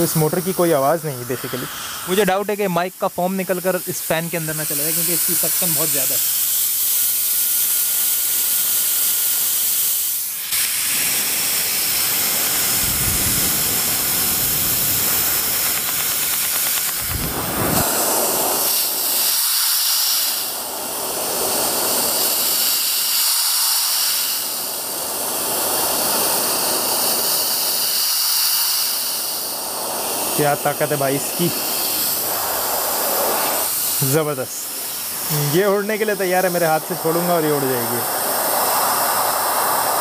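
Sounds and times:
fan air rushing: 0.0 - 40.0
wind buffeting microphone: 12.7 - 15.6.

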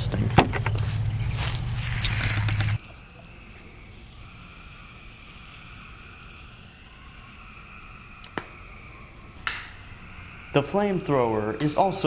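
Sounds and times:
faint steady hum: 0.0 - 12.0
sharp click: 9.4 - 9.8.

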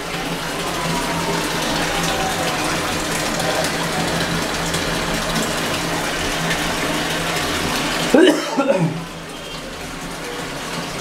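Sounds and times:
water filling washing machine: 0.0 - 11.0.

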